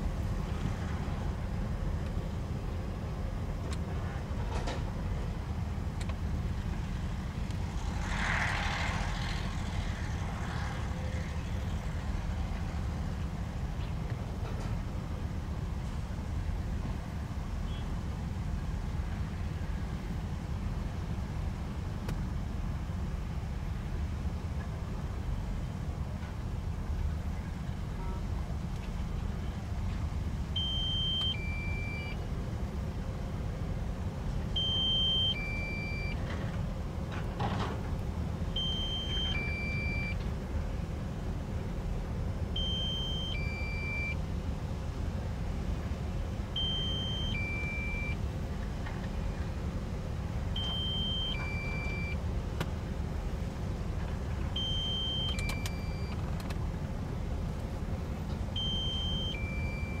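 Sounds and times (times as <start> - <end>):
two-tone electronic warning beep: 30.6 - 32.2, 34.6 - 36.2, 38.6 - 40.2, 42.6 - 44.2, 46.6 - 48.2, 50.6 - 52.2, 54.6 - 56.2, 58.6 - 60.0.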